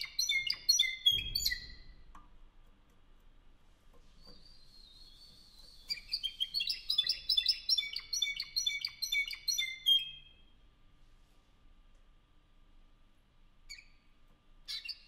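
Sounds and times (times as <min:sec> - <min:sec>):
canary singing: 0:00.0 - 0:01.9, 0:04.2 - 0:10.4, 0:13.7 - 0:15.0.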